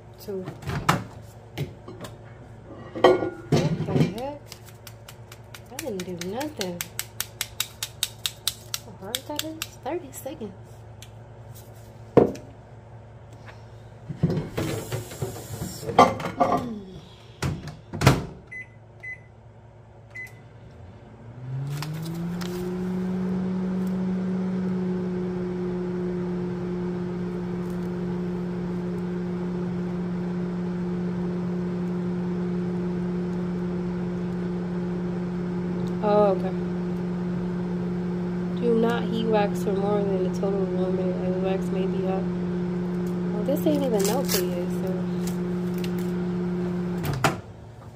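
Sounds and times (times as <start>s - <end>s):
microwave humming: 0.0s - 47.9s
microwave keypad beeps: 18.5s - 19.3s.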